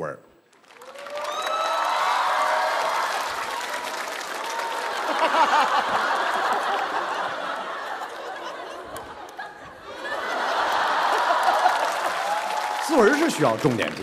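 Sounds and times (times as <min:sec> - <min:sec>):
audience laughing: 0:04.6 - 0:13.5.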